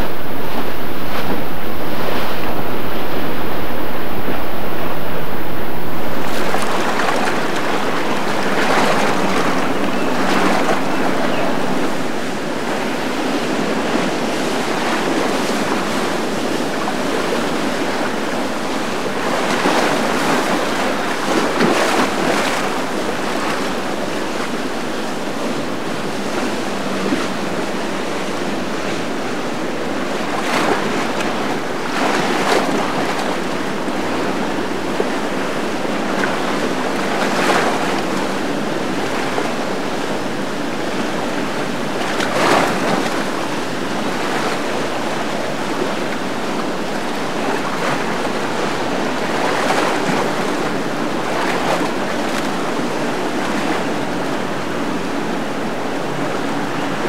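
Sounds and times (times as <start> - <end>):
wind on microphone: 0.0 - 27.1
choppy water rushing and splashing: 0.0 - 57.0.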